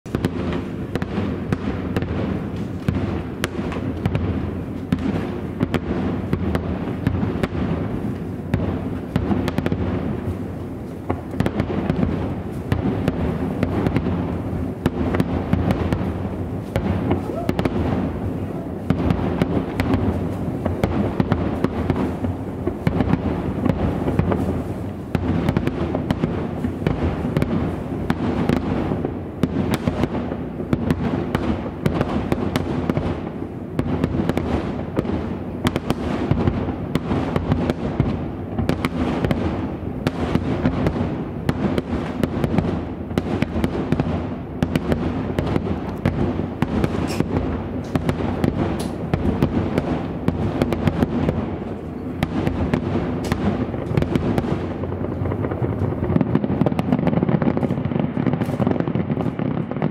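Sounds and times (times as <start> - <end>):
firework shells bursting: 41.5 - 59.9.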